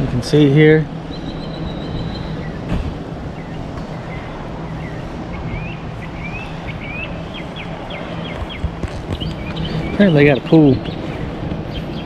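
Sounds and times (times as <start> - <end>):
birds chirping: 0.0 - 12.0
steady low hum: 0.0 - 12.0.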